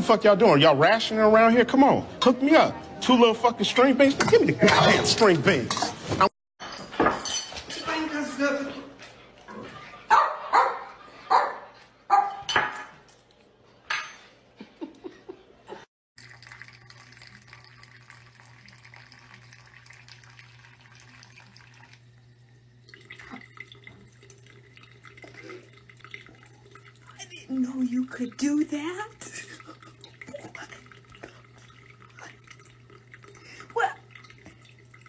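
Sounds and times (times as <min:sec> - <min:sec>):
dog barking: 0:10.1 - 0:12.5
water running from sink faucet: 0:16.2 - 0:35.0.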